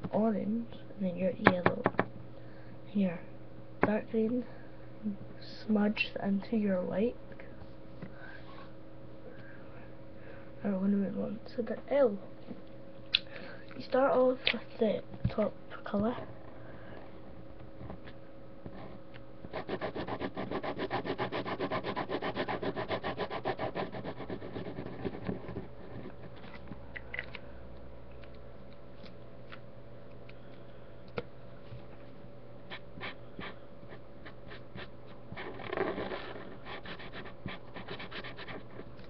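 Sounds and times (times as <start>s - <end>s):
marker scribbling on paper: 32.7s - 38.8s.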